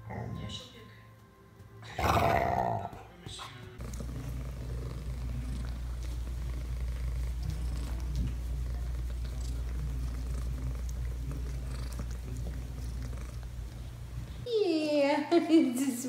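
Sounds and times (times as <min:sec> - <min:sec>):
cat purring: 0:01.9 - 0:14.4.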